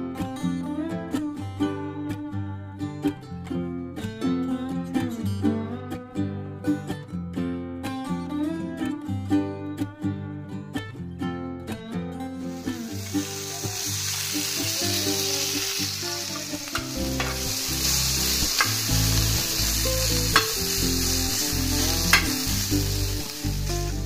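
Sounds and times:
chicken sizzling in oil: 12.4 - 24.0
metal spoon clicking against pan: 16.4 - 17.5, 18.4 - 18.9, 20.3 - 20.7, 22.1 - 22.5.

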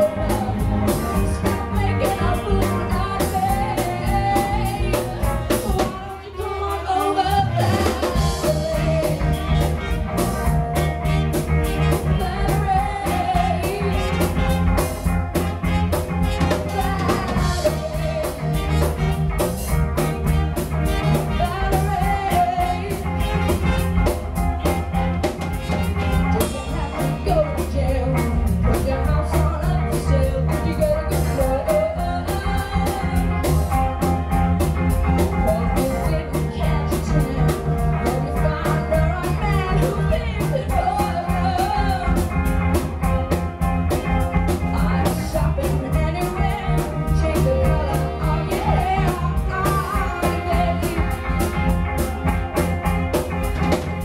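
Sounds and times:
bass guitar: 0.0 - 54.0
drums: 0.0 - 54.0
electric guitars: 0.0 - 54.0
woman singing lead: 0.0 - 54.0
trumpet: 5.8 - 27.5.

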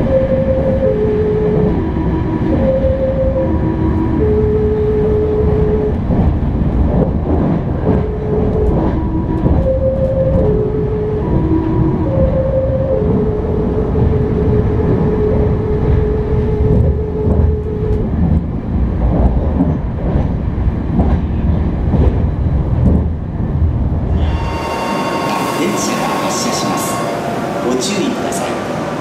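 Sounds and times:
train running rumble: 0.0 - 29.0
train music horn melody: 24.1 - 29.0.

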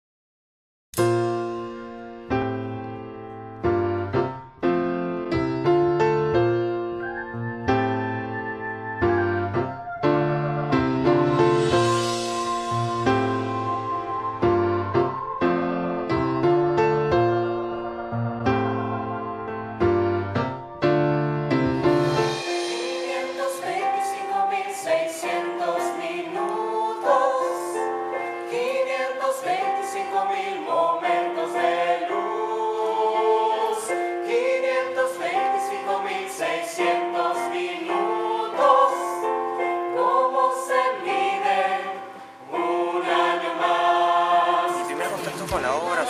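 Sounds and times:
group singing in harmony: 22.2 - 46.0.

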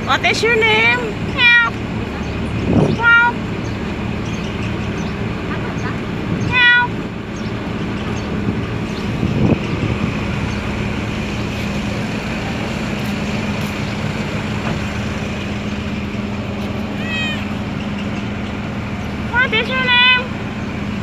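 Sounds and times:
traffic background noise: 0.0 - 21.0.

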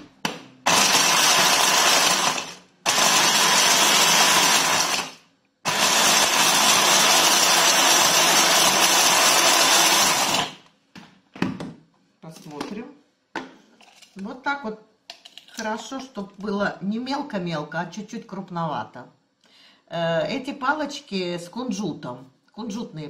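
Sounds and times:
hand blender grinding: 0.7 - 10.6.

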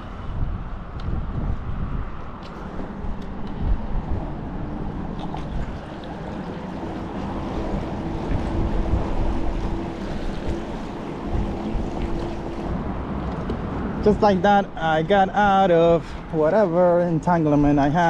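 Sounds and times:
water noise: 0.0 - 18.0
wind buffeting microphone: 0.0 - 18.0
electric outboard motor hum: 4.4 - 14.0.

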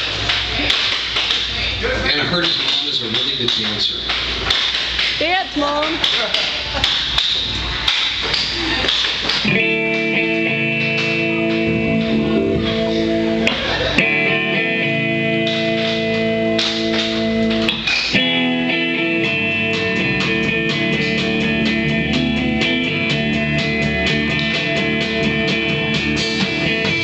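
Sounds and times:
electric guitar chords: 9.3 - 27.0.

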